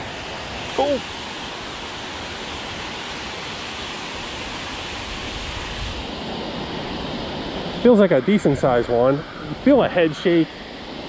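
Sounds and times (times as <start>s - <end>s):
water pouring over dam: 0.1s - 5.8s.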